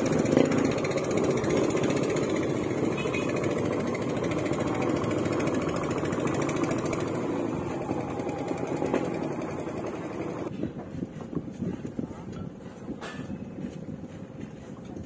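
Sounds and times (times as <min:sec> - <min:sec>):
motorboat engine hammering: 0:00.0 - 0:10.8.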